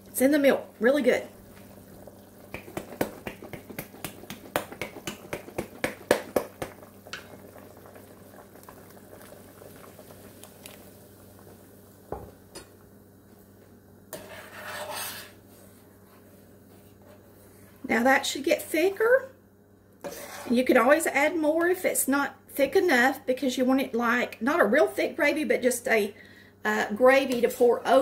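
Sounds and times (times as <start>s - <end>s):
spoon scraping a metal pot: 14.1s - 15.4s, 20.0s - 20.7s.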